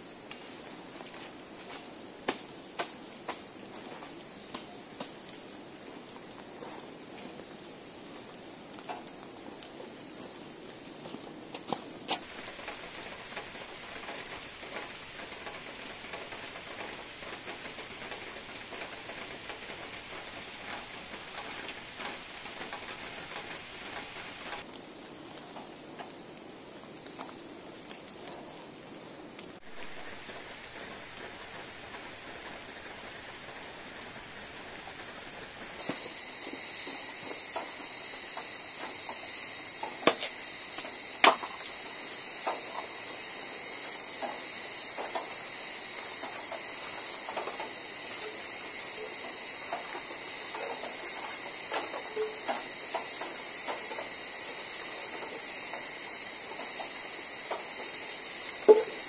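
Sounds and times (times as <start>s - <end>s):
high-pitched insect chorus: 0.0s - 59.0s
light drizzle patter: 0.0s - 59.0s
sticks and kindling cracking: 0.2s - 5.6s, 35.8s - 43.0s.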